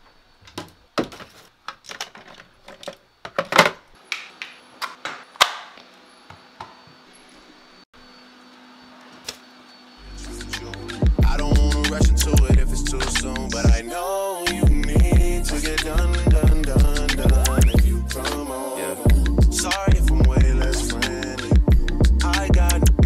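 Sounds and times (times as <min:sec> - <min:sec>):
cabinet door and plastic parts clicking: 0:00.5 - 0:03.9.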